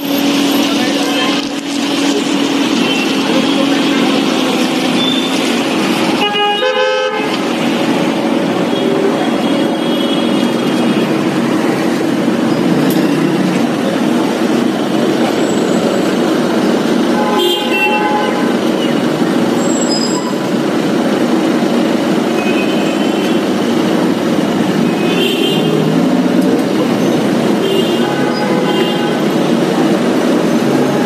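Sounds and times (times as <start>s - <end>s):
street traffic: 0.0s - 31.0s
vehicle horn tooting: 6.1s - 7.4s, 8.7s - 11.2s, 17.1s - 18.6s, 22.4s - 23.5s, 24.9s - 25.8s, 27.6s - 29.4s.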